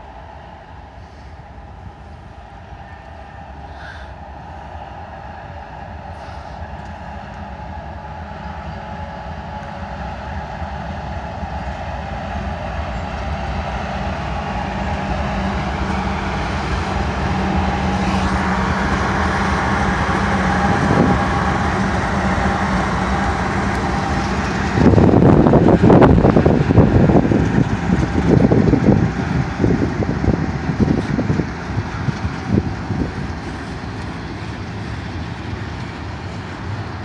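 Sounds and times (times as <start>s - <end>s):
diesel locomotives passing: 0.0s - 37.0s.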